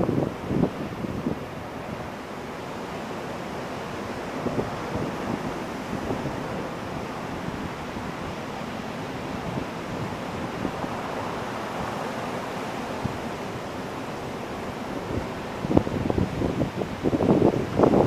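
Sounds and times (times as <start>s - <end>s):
ocean waves breaking: 0.0s - 18.0s.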